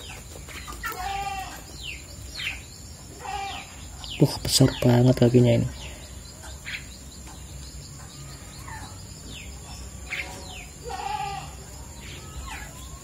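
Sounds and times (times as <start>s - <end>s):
starling nestlings chirping: 0.0s - 13.0s
harsh bird call: 3.2s - 6.1s, 10.0s - 13.0s.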